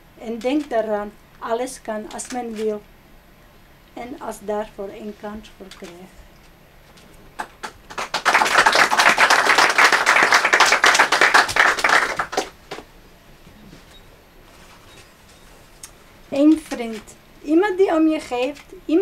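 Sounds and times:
single claps: 0:07.4 - 0:12.9
small audience applauding: 0:07.4 - 0:12.9.

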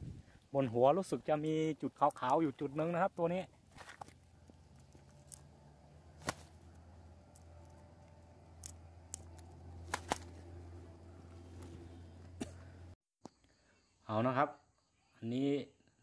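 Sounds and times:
bird flapping under net: 0:06.1 - 0:06.6, 0:09.8 - 0:10.5.

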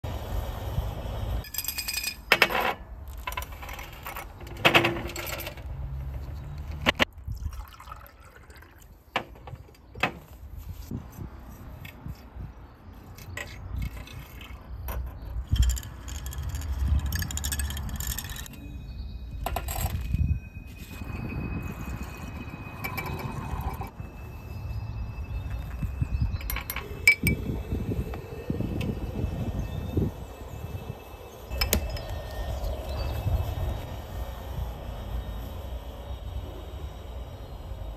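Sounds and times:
liquid pouring: 0:07.2 - 0:09.0
glassware clinking: 0:25.5 - 0:27.5.

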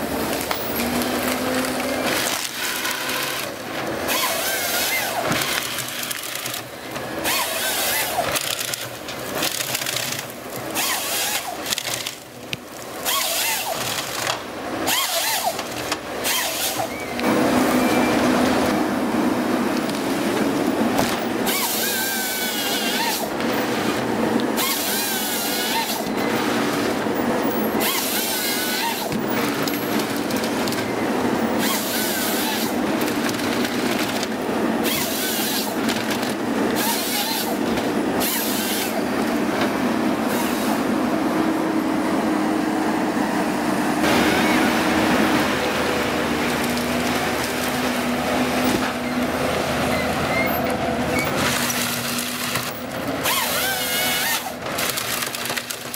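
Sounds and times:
diesel engine and hydraulics: 0:00.0 - 0:55.9
chainsaw cutting bursts: 0:00.8 - 0:06.1, 0:07.2 - 0:08.5, 0:10.7 - 0:11.8, 0:13.0 - 0:14.2, 0:14.8 - 0:15.6, 0:16.2 - 0:18.4, 0:21.4 - 0:23.4, 0:24.5 - 0:26.7, 0:27.8 - 0:29.1, 0:31.6 - 0:32.8, 0:34.8 - 0:35.8, 0:36.7 - 0:37.6, 0:38.2 - 0:39.0, 0:51.6 - 0:55.3.

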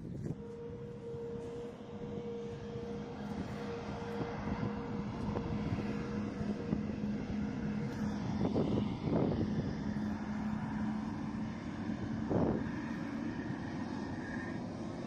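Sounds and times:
jet engines humming and rushing: 0:00.0 - 0:15.0.

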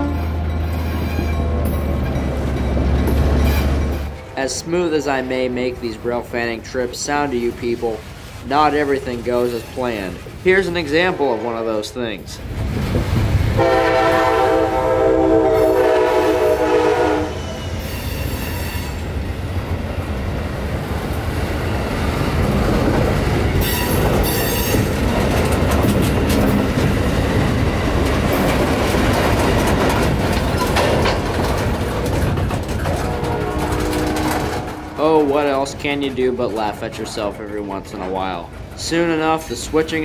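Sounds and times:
locomotive air horn: 0:00.0 - 0:01.3, 0:13.6 - 0:19.0, 0:32.9 - 0:35.3
rail clicks: 0:00.0 - 0:40.0
train wheel rumble: 0:00.0 - 0:40.0.

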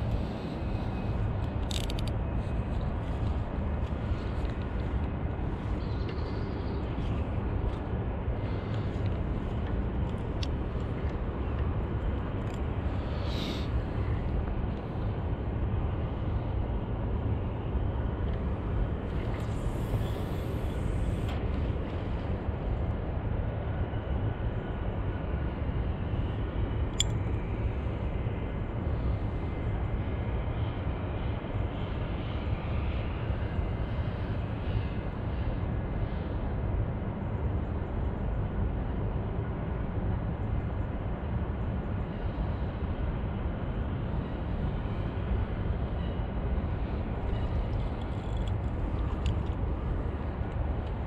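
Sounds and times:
fishing reel bail click: 0:01.6 - 0:02.1.

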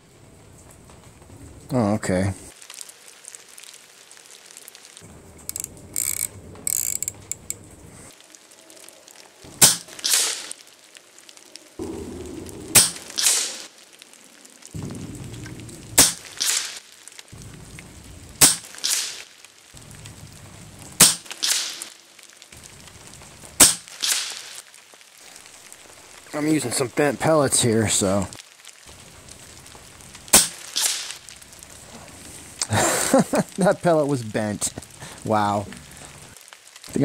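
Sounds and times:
air rifle shots: 0:11.8 - 0:13.7.

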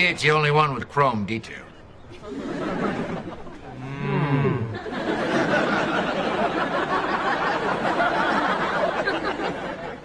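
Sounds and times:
audience laughing: 0:02.1 - 0:10.0.

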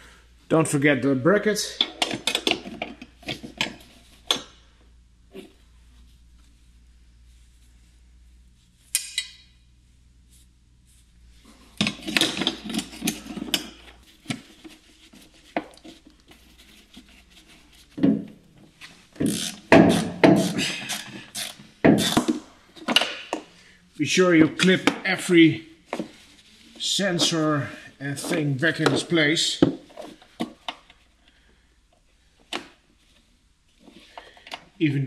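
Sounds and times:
tools and metal parts clinking: 0:11.8 - 0:13.9.

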